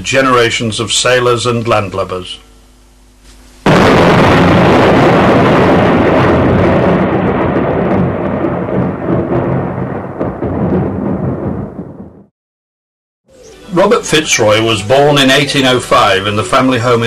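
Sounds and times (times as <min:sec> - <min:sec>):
thunder clap and rumble: 0:03.7 - 0:12.3.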